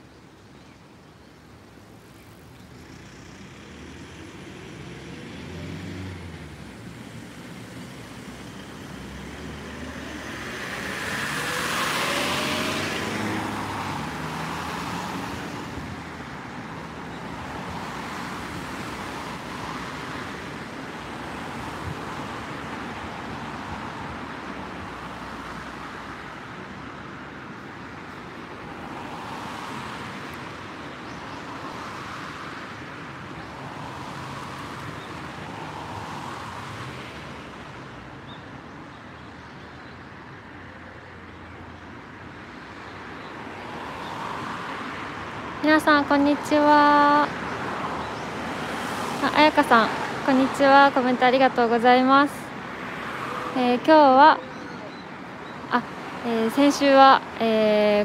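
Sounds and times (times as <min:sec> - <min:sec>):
traffic hum: 0:00.0 - 0:58.0
vehicle passing by: 0:02.9 - 0:16.0, 0:43.6 - 0:55.0.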